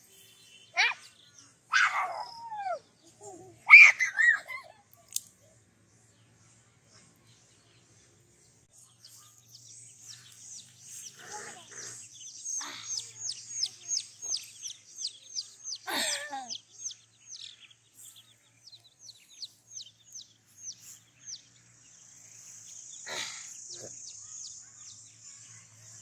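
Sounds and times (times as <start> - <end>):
chicks peeping: 10.1 - 15.8, 16.5 - 21.5
child's voice: 11.2 - 12.0, 12.6 - 14.3.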